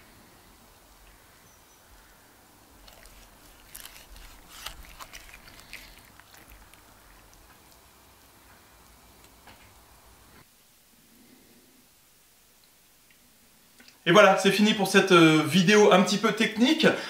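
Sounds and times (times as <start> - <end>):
knife crunching roasted skin: 2.8 - 7.9.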